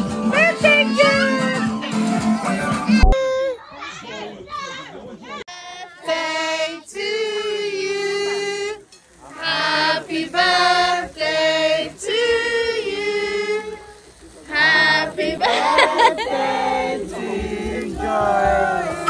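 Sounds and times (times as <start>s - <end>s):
group singing unaccompanied: 5.5s - 19.0s.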